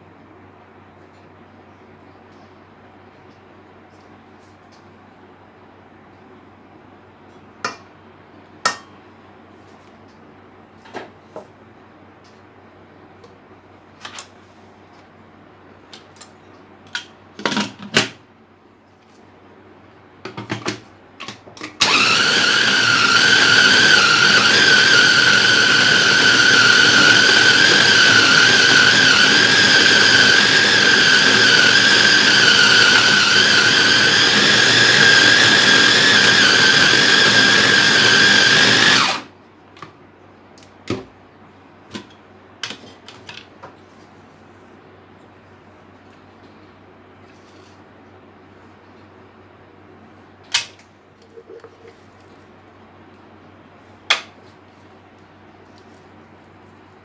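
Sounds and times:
food chopper motor whining: 0:21.8 - 0:39.3.

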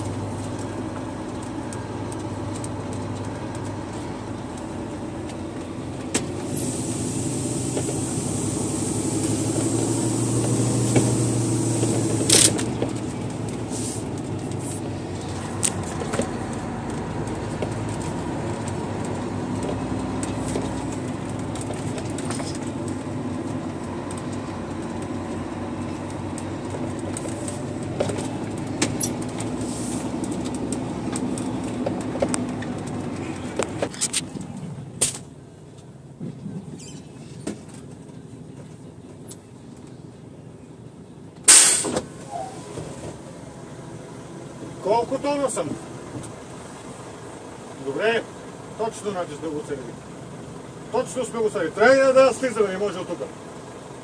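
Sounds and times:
diesel truck engine running: 0:00.0 - 0:54.0
short sharp noise: 0:41.5 - 0:42.6.

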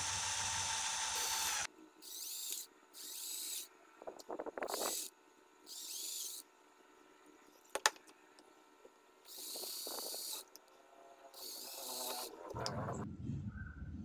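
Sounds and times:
cordless drill motor whining: 0:00.0 - 0:03.7, 0:04.6 - 0:06.4, 0:09.3 - 0:10.6, 0:11.3 - 0:12.6.

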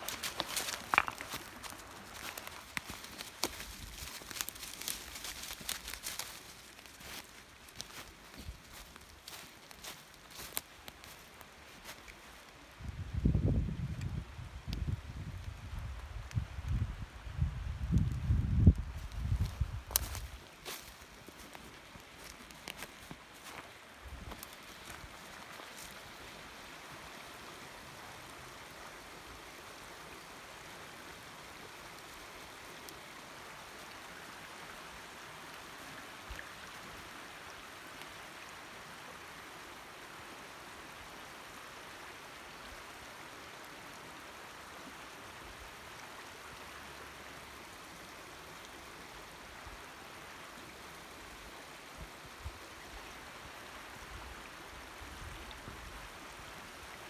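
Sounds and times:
creek running over rocks: 0:00.0 - 0:57.0.

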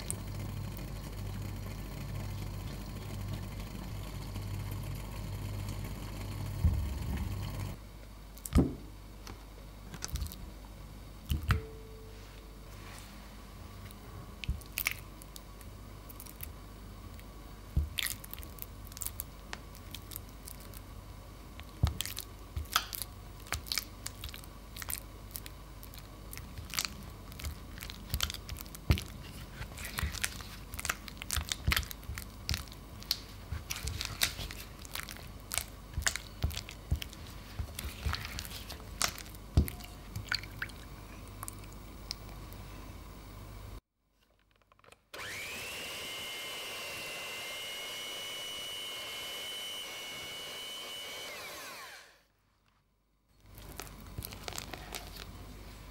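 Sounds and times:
cream cheese squishing: 0:14.4 - 0:42.6, 0:53.4 - 0:55.9.

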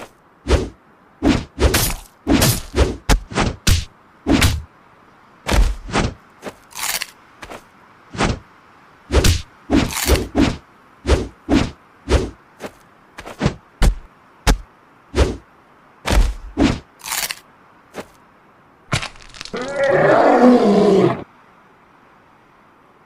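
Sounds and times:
lion roar sound effect: 0:19.5 - 0:21.3.

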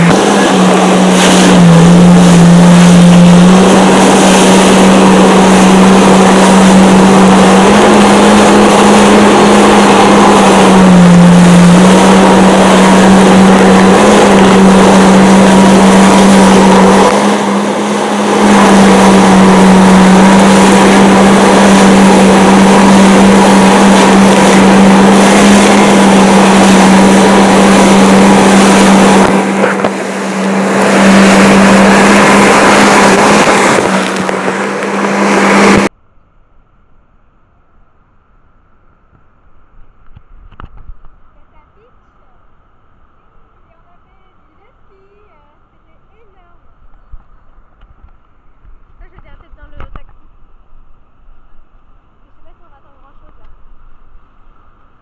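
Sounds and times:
water rushing under hull: 0:00.0 - 0:35.9
jet ski engine drone: 0:00.0 - 0:55.0.

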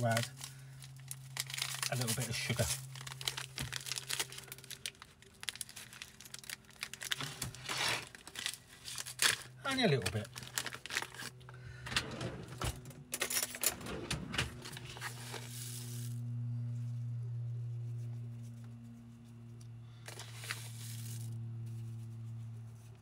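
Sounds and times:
paper bag rustling: 0:00.0 - 0:11.4, 0:14.4 - 0:16.2, 0:20.0 - 0:21.4
steady low hum: 0:00.0 - 0:23.0
sugar sprinkling hiss: 0:15.2 - 0:16.2, 0:20.1 - 0:22.2.

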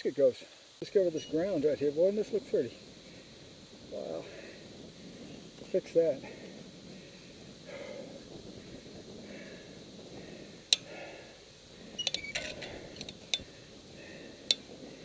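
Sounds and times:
man breathing heavily: 0:02.8 - 0:12.0, 0:12.6 - 0:15.0
metallic clinks of climbing hardware: 0:12.0 - 0:13.5.

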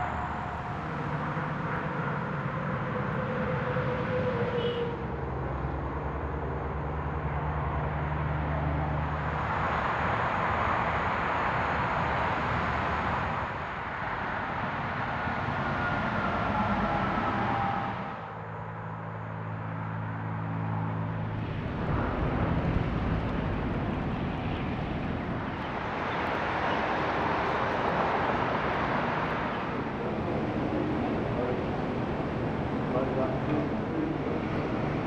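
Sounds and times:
distant engine hum: 0:00.0 - 0:35.0
outdoor rumble and hiss: 0:00.0 - 0:35.0
steady droning tone: 0:18.2 - 0:35.0.

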